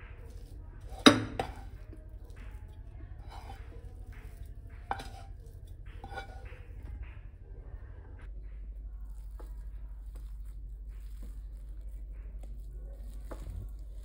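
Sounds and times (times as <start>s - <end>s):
knife scraping a frying pan: 0.8s - 1.8s, 3.2s - 6.8s.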